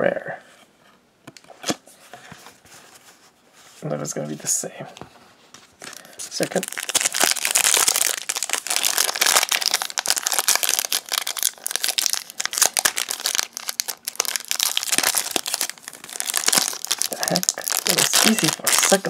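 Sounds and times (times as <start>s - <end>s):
foil wrapper crinkling: 5.8s - 19.0s.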